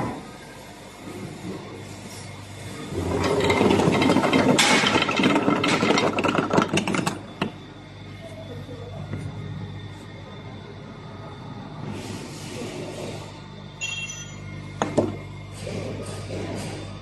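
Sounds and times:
cutting machine rattling clatter: 0:03.0 - 0:07.4.

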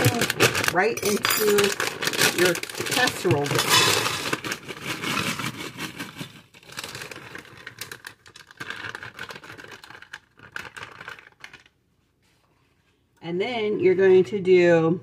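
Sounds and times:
frozen vegetables rattling into glass dish: 0:00.0 - 0:11.7.

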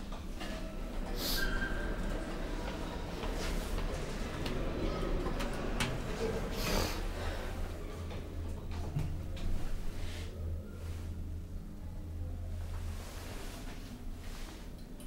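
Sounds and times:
elevator drive hum: 0:00.0 - 0:15.0.

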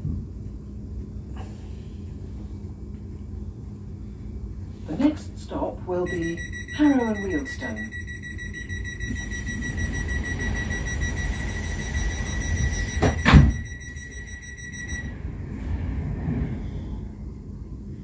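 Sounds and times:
train rumble: 0:00.0 - 0:18.0
high-pitched whine: 0:06.0 - 0:15.6
loud thump: 0:12.9 - 0:13.6.

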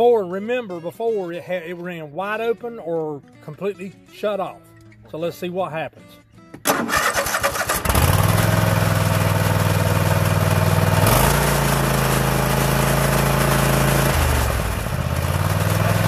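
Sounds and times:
mower engine running: 0:06.7 - 0:16.0.

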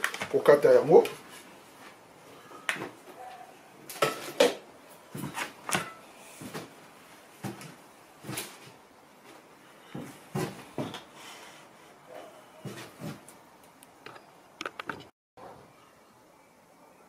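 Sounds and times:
kitchen items knocking and clinking: 0:05.2 - 0:06.0.

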